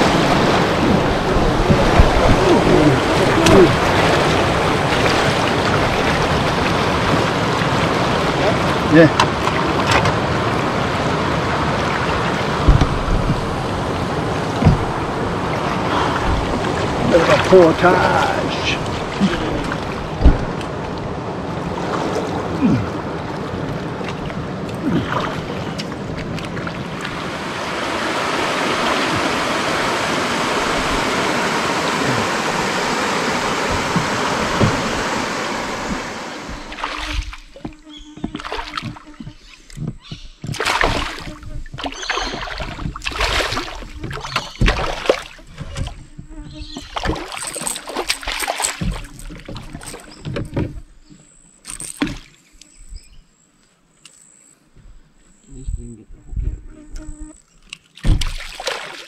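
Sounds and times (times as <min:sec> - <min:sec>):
steady rushing noise: 0:00.0 - 0:22.1, 0:26.0 - 0:37.3
fish splashing at water surface: 0:24.0 - 0:37.6, 0:38.2 - 0:46.0, 0:46.8 - 0:50.4, 0:57.9 - 0:59.0.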